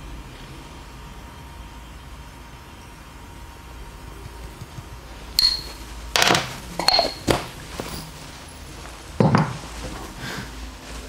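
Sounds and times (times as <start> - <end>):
glass jars clinking: 5.4 - 8.1.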